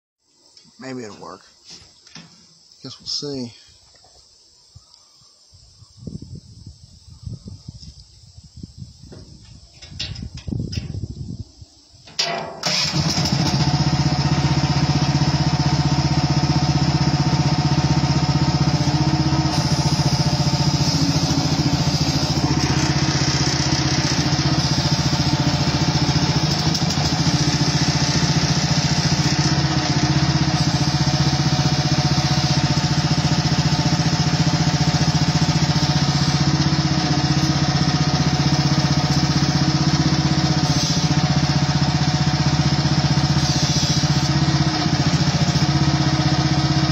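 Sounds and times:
small excavator engine running: 12.2s - 46.9s.

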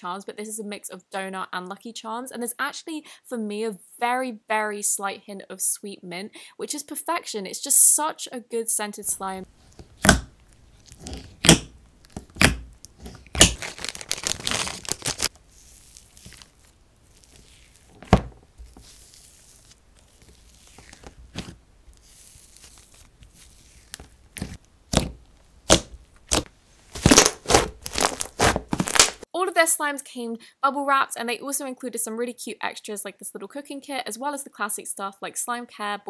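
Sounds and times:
slime crackling: 9.2s - 29.2s
slime popping and clicking: 10.0s - 10.3s, 11.1s - 13.7s, 24.4s - 28.1s.

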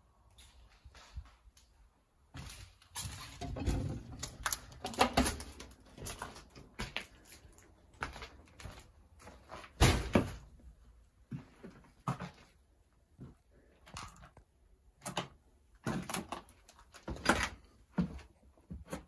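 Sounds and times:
footsteps on debris: 0.4s - 9.8s.

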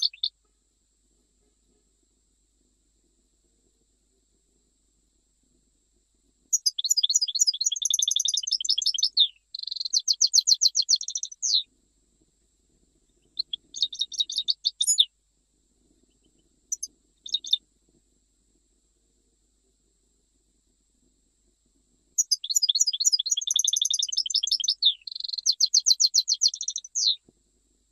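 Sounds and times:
goldfinch singing trills: 0.0s - 0.3s, 6.5s - 11.7s, 13.2s - 15.1s, 16.1s - 17.6s, 22.2s - 27.2s.

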